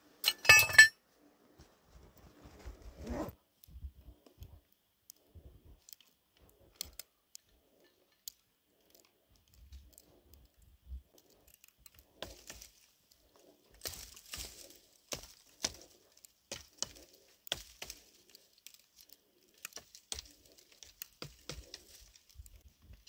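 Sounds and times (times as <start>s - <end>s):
small clicks and snaps: 3.5s - 23.0s
branches snapping and rustling: 11.1s - 23.0s.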